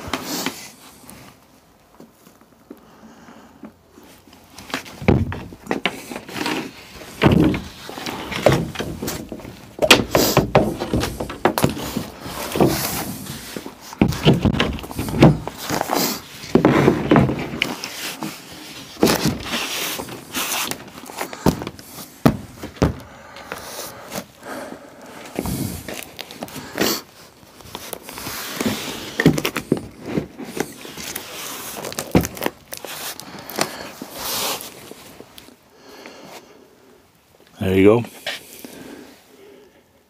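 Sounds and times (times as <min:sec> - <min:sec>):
rustling: 0:03.9 - 0:36.6
knocks and thumps on plywood: 0:04.9 - 0:06.0, 0:07.0 - 0:13.4, 0:14.0 - 0:17.8, 0:19.0 - 0:20.0, 0:21.4 - 0:23.1.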